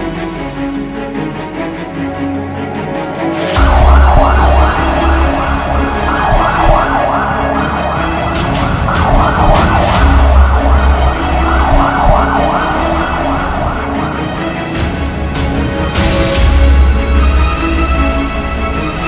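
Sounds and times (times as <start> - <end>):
background music with deep bass: 0.0 - 19.0
ambulance siren fast yelp: 3.6 - 14.8.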